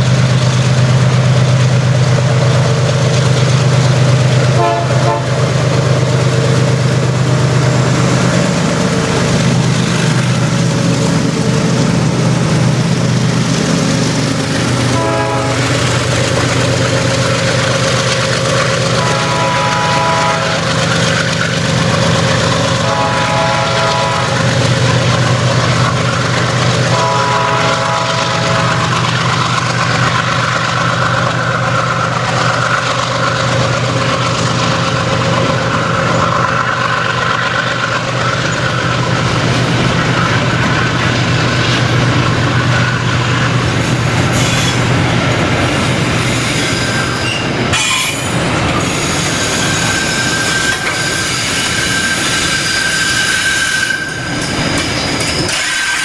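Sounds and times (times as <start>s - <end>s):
diesel locomotive engines running: 0.0s - 56.0s
train wagons rumbling on rails: 0.0s - 56.0s
locomotive horn blasts: 4.5s - 5.4s, 14.9s - 15.8s, 18.9s - 20.8s, 22.8s - 24.4s, 26.9s - 29.0s.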